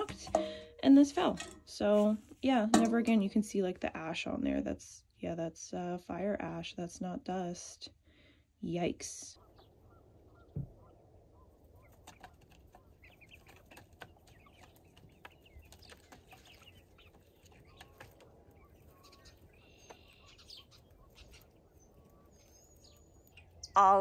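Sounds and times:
hens clucking: 9.3s - 24.0s.

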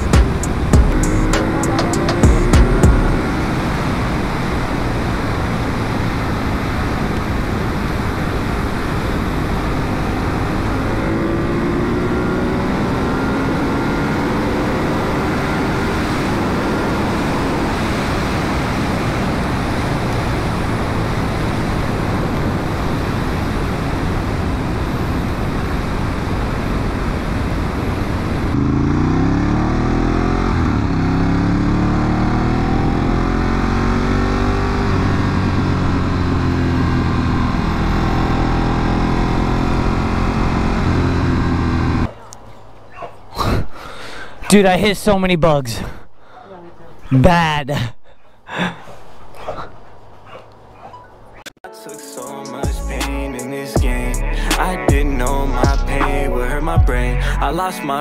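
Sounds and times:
motorcycle engine running: 0.0s - 4.0s.

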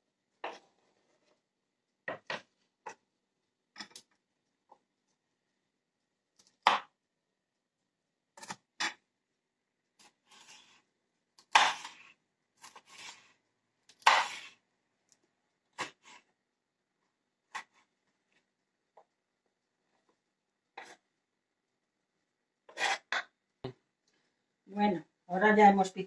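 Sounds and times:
knife cutting on wooden board: 11.5s - 12.0s, 14.0s - 14.5s.

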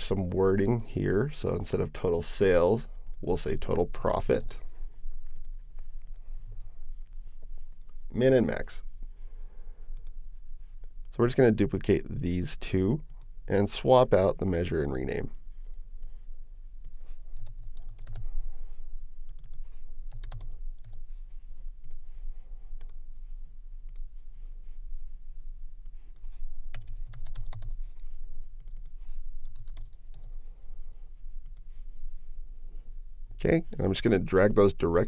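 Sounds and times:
keyboard typing: 17.3s - 18.4s, 19.3s - 21.0s, 25.8s - 30.4s.

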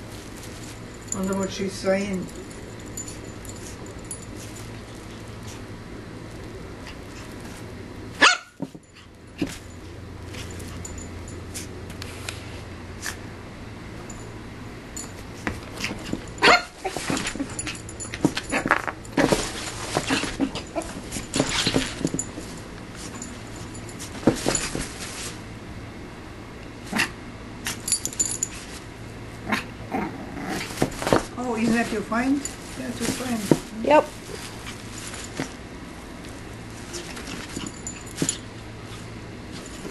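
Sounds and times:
puppy yipping and barking: 8.2s - 8.6s, 16.4s - 16.8s
playpen rattling and knocking: 15.4s - 25.3s, 30.6s - 35.6s.

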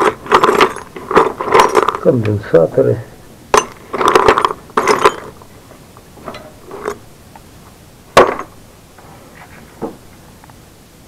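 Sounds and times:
metal parts clinking in bucket: 0.0s - 2.1s, 3.6s - 5.5s, 6.2s - 7.0s.

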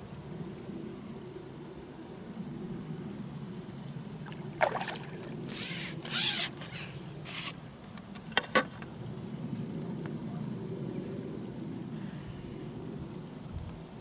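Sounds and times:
fish thrashing and splashing water: 4.2s - 5.6s.

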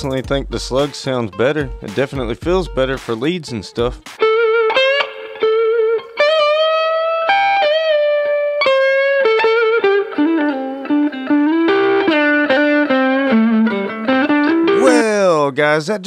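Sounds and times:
electric guitar lead: 4.2s - 15.2s.

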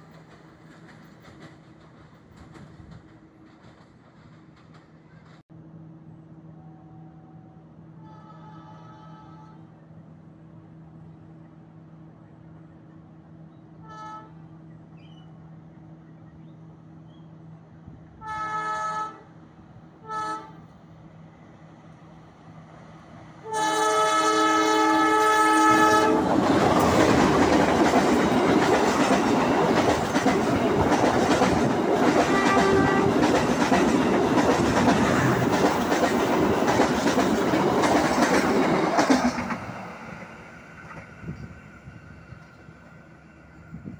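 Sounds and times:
train horn: 6.5s - 9.7s, 13.8s - 14.5s, 18.2s - 19.4s, 20.0s - 20.7s, 23.4s - 26.3s, 32.1s - 33.4s.

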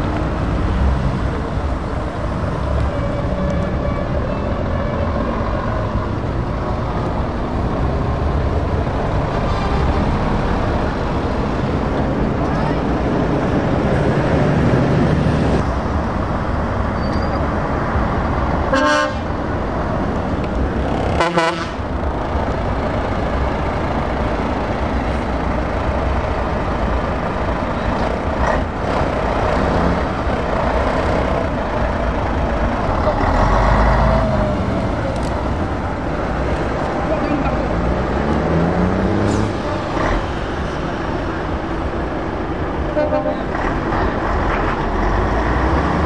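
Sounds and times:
diesel truck engines running: 0.0s - 46.0s
truck horn toots: 18.7s - 19.3s, 21.1s - 21.8s, 42.9s - 43.5s.

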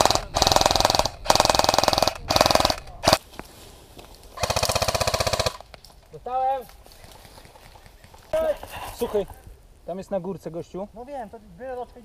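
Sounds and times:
airsoft rifle firing bursts: 0.0s - 3.2s, 4.4s - 5.6s.

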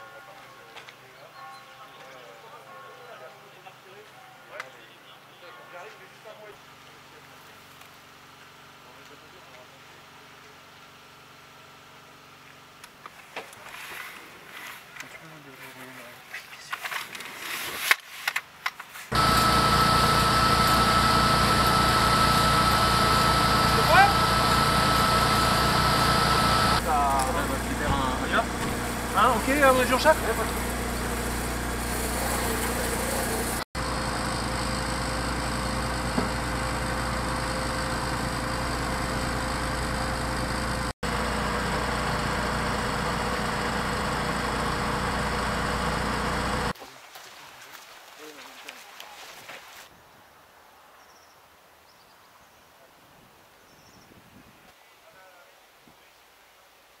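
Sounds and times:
constant high whine: 18.3s - 46.8s
fire engine engine running: 19.1s - 46.8s.

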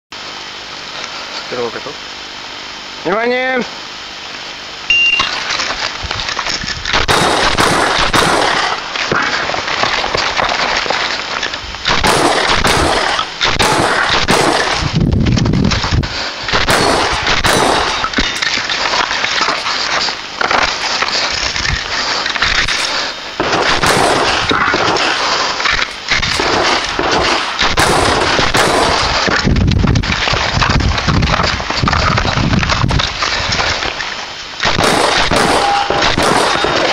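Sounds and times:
shotgun shots: 6.9s - 9.8s, 11.8s - 14.9s, 16.5s - 18.4s, 23.4s - 29.4s, 34.6s - 36.9s.

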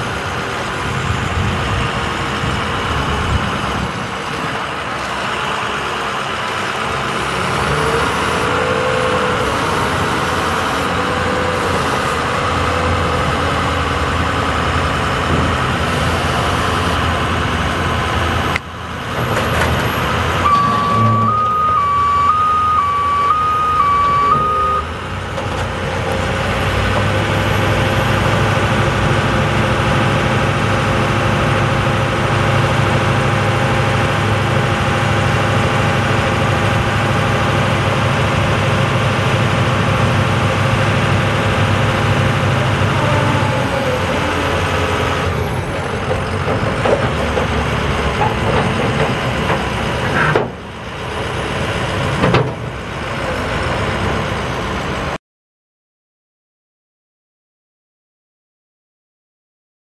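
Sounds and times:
diesel engine running: 0.0s - 55.2s
two-tone warning beep: 20.4s - 24.9s.

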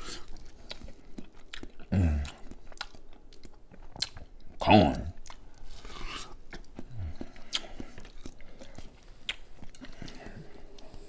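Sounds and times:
wet chewing of corn: 0.0s - 11.0s.

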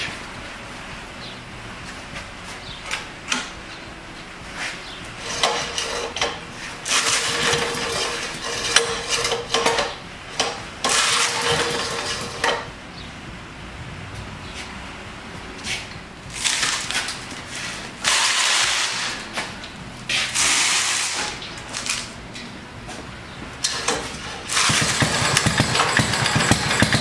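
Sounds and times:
engine sputtering: 0.0s - 27.0s
metallic rattling and clattering: 5.1s - 12.8s.

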